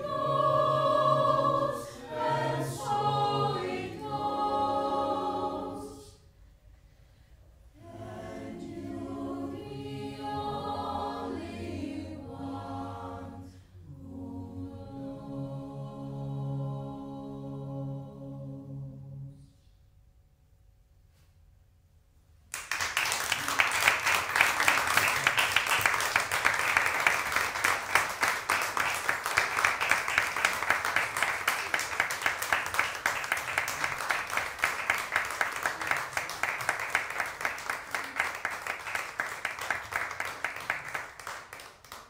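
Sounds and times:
audience applauding: 22.5 - 42.0.

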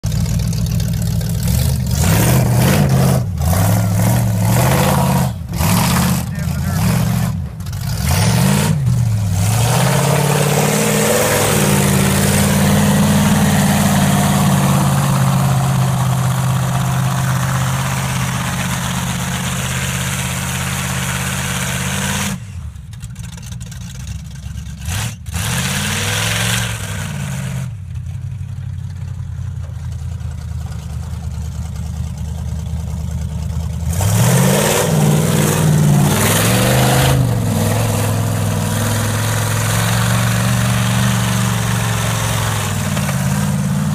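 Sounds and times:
truck engine revving: 0.0 - 29.1, 29.9 - 43.9.

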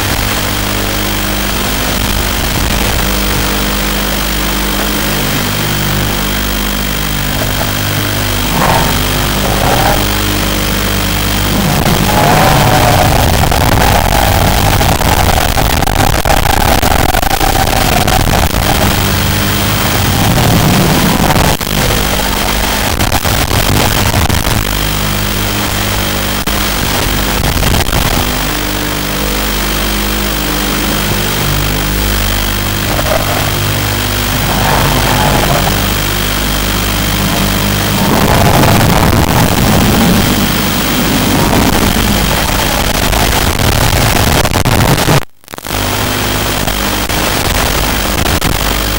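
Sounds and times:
quadcopter motors whining: 2.0 - 22.8, 30.6 - 43.3.

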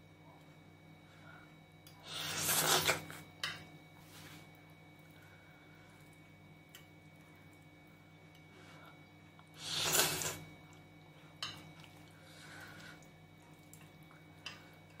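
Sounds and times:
person slurping noodles: 2.1 - 3.1, 9.6 - 10.4.

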